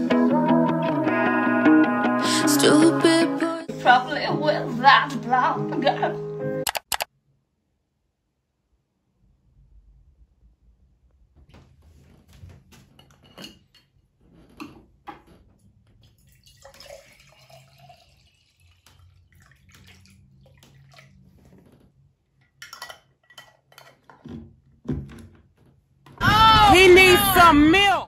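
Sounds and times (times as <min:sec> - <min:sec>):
water pouring into a glass jar: 0:16.0 - 0:21.6
jar and lid clinks and knocks: 0:22.6 - 0:24.4.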